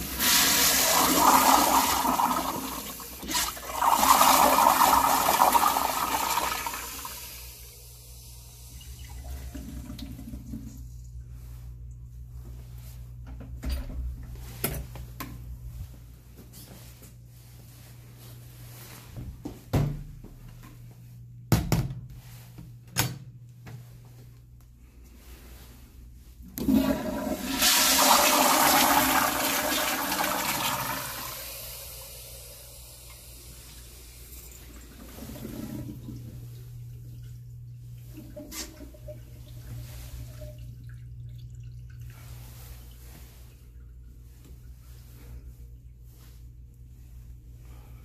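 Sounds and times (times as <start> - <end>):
toilet flush water rushing: 0.0 - 7.7, 26.6 - 36.3.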